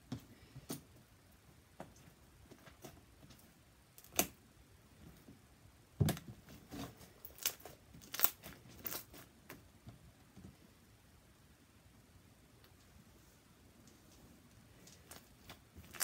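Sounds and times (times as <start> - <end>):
slime crackling and snapping: 7.3 - 9.1, 15.1 - 16.0.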